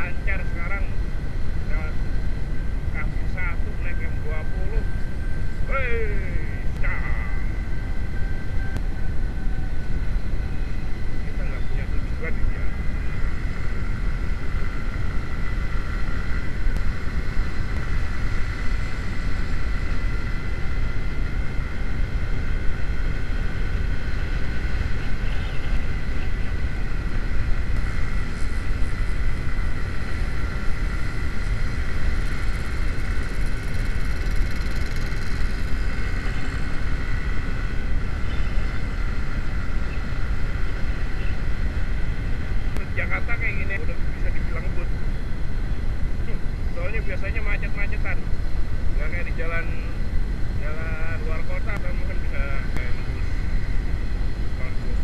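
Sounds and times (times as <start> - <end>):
steady high tone: 0.0 - 55.0
wind rushing over microphone: 0.0 - 55.0
motorcycle engine running: 12.4 - 42.8.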